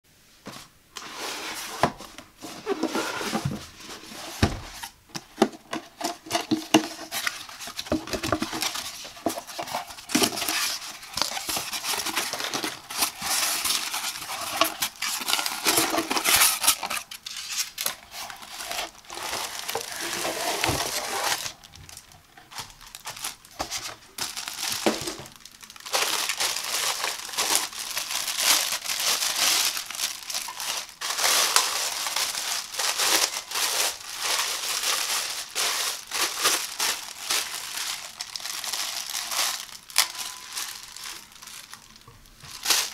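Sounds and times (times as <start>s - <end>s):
plastic bag crinkling: 5.7s - 42.9s
cardboard box handled and opened: 17.8s - 21.6s.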